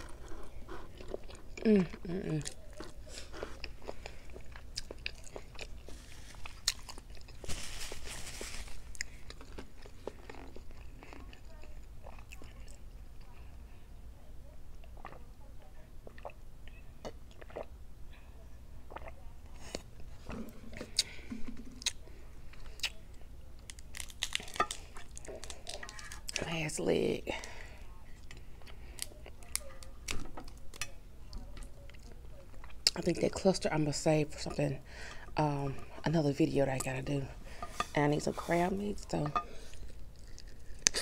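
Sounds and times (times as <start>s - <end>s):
close chewing: 0.0s - 13.5s, 21.8s - 26.4s
crab shells cracking: 23.6s - 26.4s.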